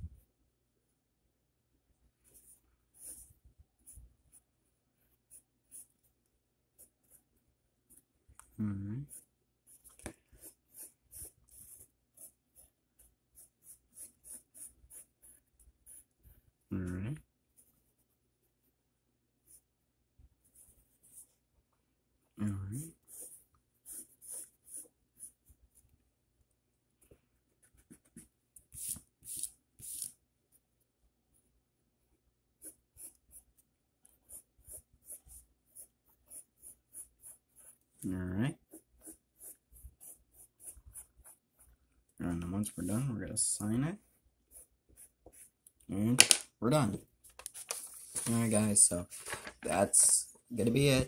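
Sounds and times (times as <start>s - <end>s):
pencil scratching on paper: 2.2s - 8.1s, 9.1s - 16.7s, 20.4s - 21.4s, 22.9s - 25.9s, 27.4s - 30.2s, 32.5s - 38.0s, 38.6s - 41.9s, 44.0s - 45.7s.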